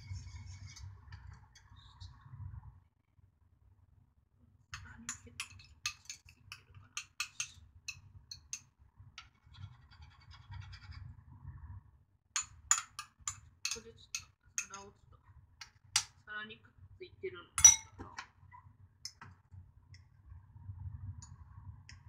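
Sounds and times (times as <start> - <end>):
utensil clicking on ceramic bowl: 4.8 - 8.7, 12.4 - 14.8, 17.6 - 17.9.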